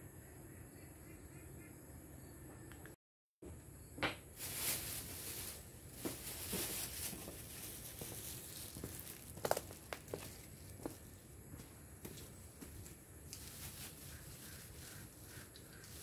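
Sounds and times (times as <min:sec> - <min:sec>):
rain pattering on leaves: 0:04.4 - 0:10.7.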